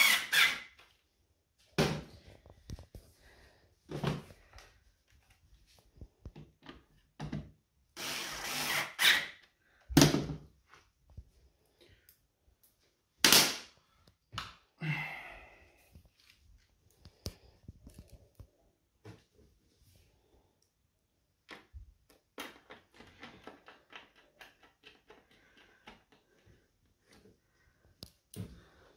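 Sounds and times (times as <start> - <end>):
cordless screwdriver running: 8.0 - 9.2.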